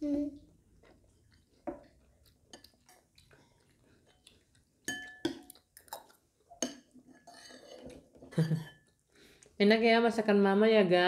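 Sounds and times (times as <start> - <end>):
metal spoon scraping a bowl: 6.6 - 8.0.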